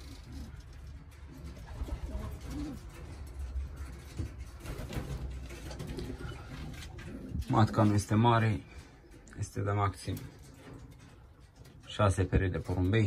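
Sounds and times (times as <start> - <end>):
pigeons cooing: 0.0 - 9.4.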